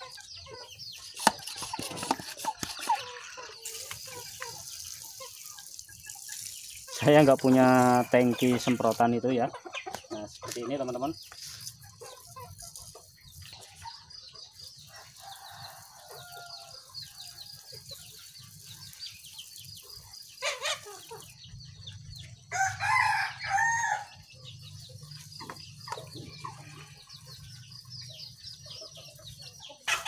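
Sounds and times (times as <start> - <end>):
chickens clucking: 0.0 - 30.0
rooster crowing: 22.5 - 24.2.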